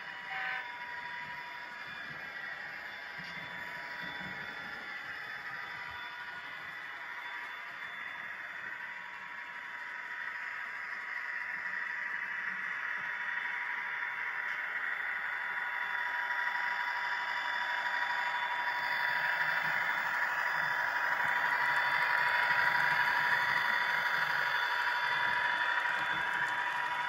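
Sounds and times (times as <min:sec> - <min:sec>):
model train whirring hiss: 0:00.0 - 0:27.0
thin constant whine: 0:00.0 - 0:27.0.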